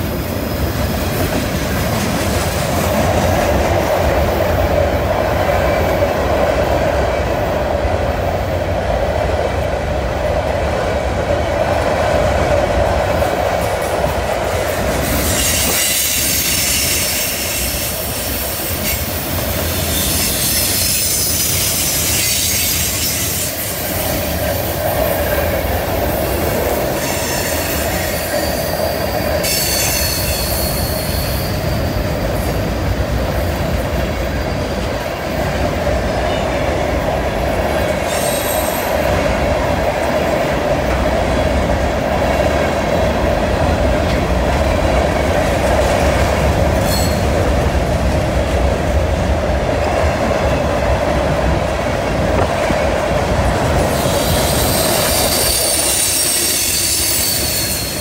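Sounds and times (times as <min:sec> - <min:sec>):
freight train rumbling past: 0:00.0 - 0:58.0
high-pitched wheel squeal: 0:15.1 - 0:18.0, 0:19.7 - 0:23.7, 0:27.0 - 0:32.2, 0:46.8 - 0:47.3, 0:53.9 - 0:58.0.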